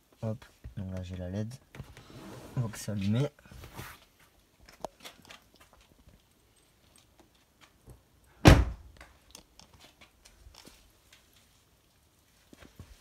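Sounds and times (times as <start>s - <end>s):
light clicks and rustles: 3.0s - 8.1s, 8.9s - 13.0s.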